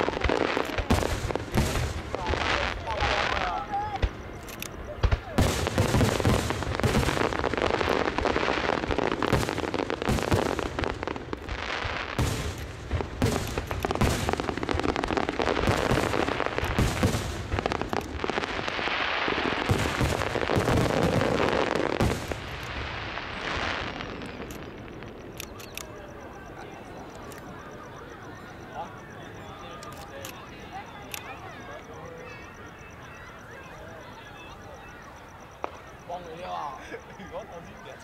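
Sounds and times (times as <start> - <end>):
fireworks crackle: 0.0 - 27.8
fireworks bangs: 0.0 - 28.1, 35.4 - 36.8.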